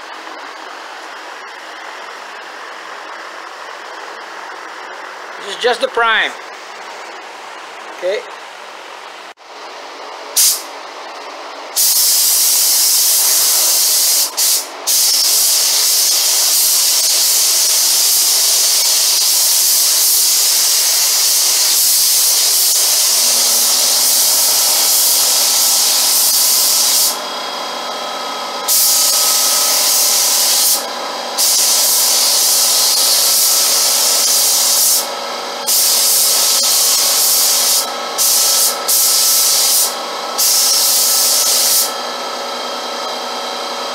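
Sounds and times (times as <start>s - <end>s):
paint spray gun hissing: 10.3s - 10.7s, 11.8s - 27.3s, 28.6s - 42.0s.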